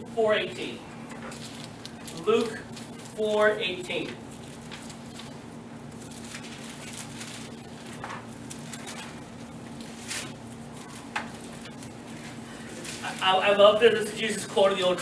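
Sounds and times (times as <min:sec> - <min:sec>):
steady low hum: 0:00.0 - 0:15.0
pages turning: 0:04.0 - 0:13.3.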